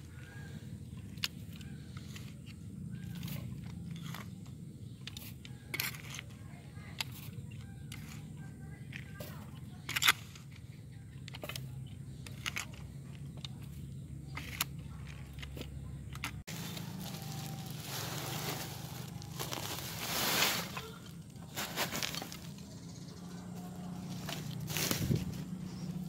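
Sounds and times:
soil crunching and rustling: 11.2 - 26.0
grainy rush of soil: 16.5 - 22.6
plastic sack rustling: 16.5 - 22.6, 24.1 - 25.7.

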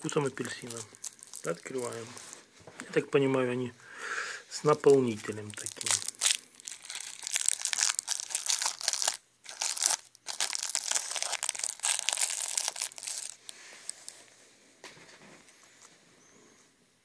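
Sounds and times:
plastic candy wrapper crinkling: 0.0 - 3.0, 4.8 - 14.2.

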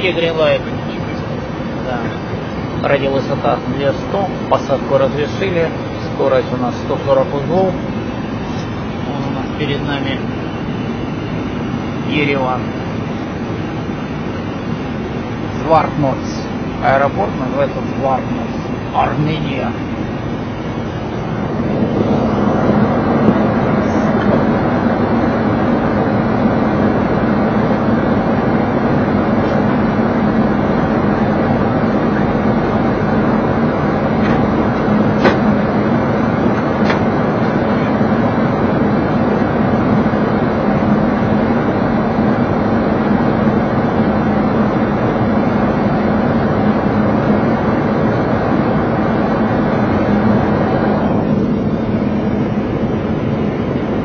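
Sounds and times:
airflow rushing past cockpit: 0.0 - 54.0
jet engines running: 0.0 - 54.0
low steady hum: 0.0 - 54.0
airflow rushing: 19.8 - 25.1.

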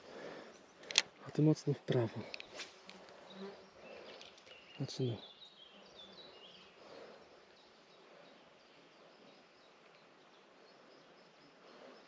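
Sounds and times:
soft bird chirps: 0.0 - 12.0.

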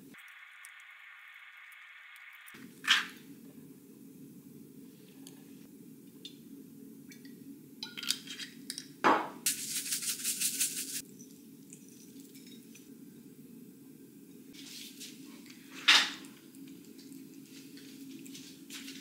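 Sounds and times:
spice grinder crunching: 9.5 - 11.0.

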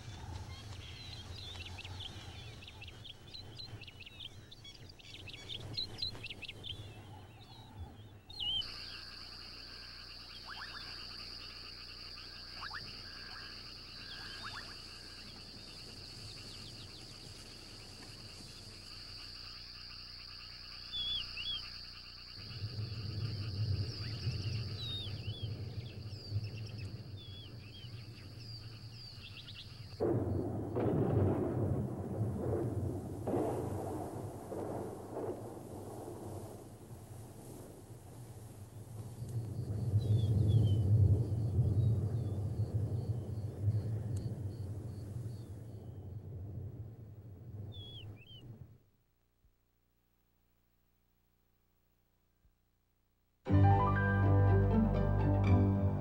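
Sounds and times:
birds chirping: 0.0 - 30.5.

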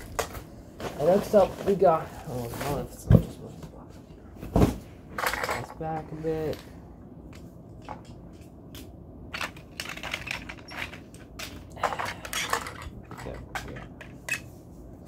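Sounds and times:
plastic toys clicking and rattling: 7.8 - 14.5.

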